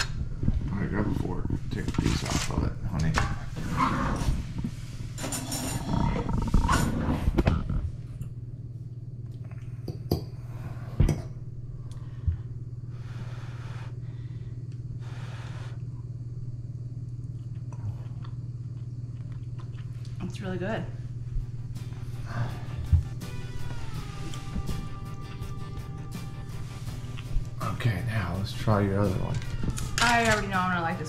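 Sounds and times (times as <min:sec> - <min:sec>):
steady low hum: 0:00.0 - 0:31.0
puffs of breath blowing: 0:12.8 - 0:15.8.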